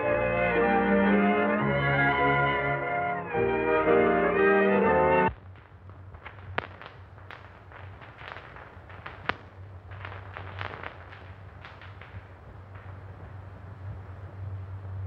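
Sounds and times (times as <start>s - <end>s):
low hum: 0.0s - 15.0s
film crackles and pops: 5.2s - 15.0s.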